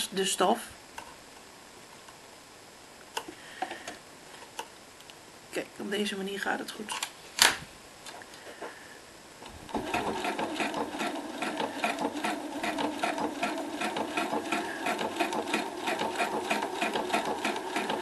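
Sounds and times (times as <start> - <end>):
sewing machine motor hum: 9.4 - 18.0
sewing machine stitching: 9.7 - 18.0.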